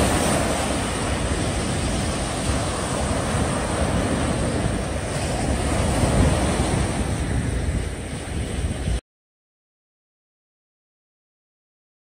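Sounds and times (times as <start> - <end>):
small waves breaking on beach: 0.0 - 9.0
wind buffeting microphone: 0.0 - 9.0.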